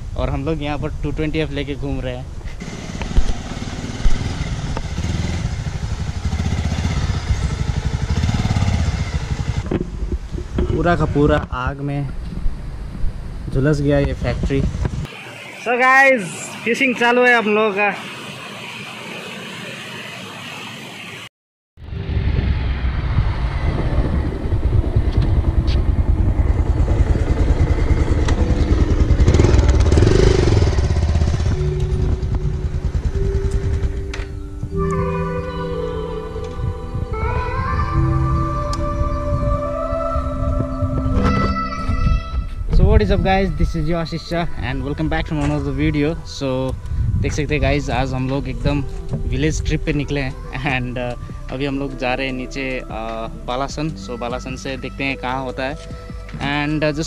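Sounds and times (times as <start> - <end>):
motorcycle engine at low revs: 2.6 - 10.8, 23.1 - 34.4.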